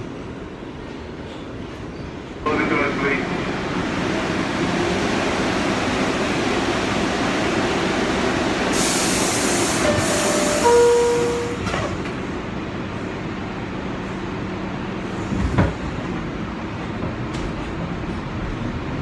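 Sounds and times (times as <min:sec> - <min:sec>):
subway car humming: 0:00.0 - 0:19.0
train doors shutting: 0:00.8 - 0:13.1, 0:14.0 - 0:18.3
hissing air burst: 0:08.6 - 0:10.6.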